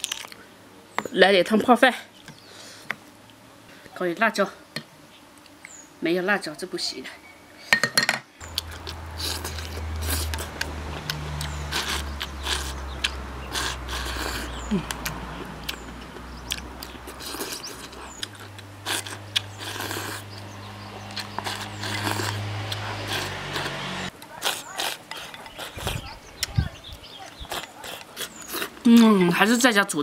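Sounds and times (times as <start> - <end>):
low hum: 8.4 - 24.1
slurping and chewing: 8.4 - 29.1.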